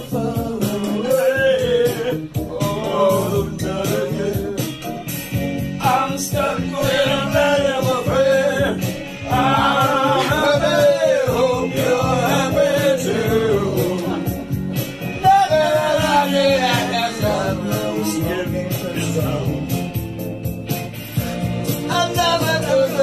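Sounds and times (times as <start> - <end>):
low musical accompaniment: 0.0 - 23.0
person singing long bending notes: 6.0 - 14.4.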